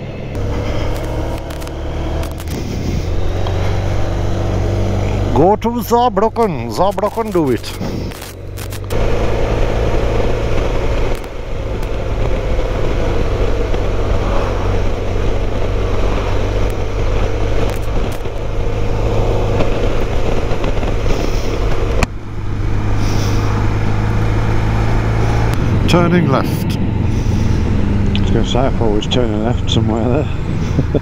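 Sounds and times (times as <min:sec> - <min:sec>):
motorcycle engine cruising: 0:00.0 - 0:31.0
wind rushing past: 0:22.6 - 0:28.8.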